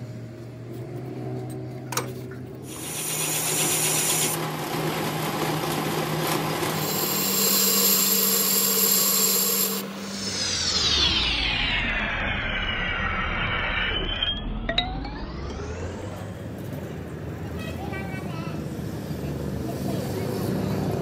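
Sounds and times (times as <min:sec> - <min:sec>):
lathe motor hum: 0:02.6 - 0:11.3
falling whine: 0:06.6 - 0:17.3
hissing cutting noise: 0:06.8 - 0:13.8.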